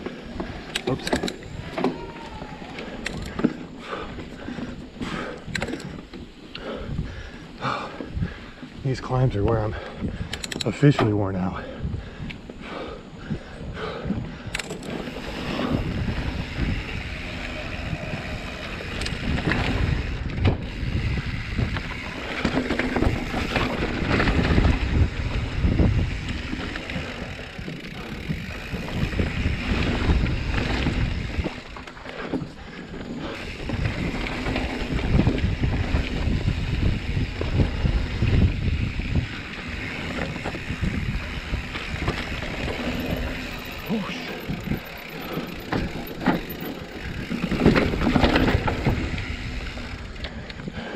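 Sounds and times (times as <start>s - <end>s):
wind buffeting microphone: 0.0s - 50.9s
tyres rumbling on dirt: 14.4s - 50.9s.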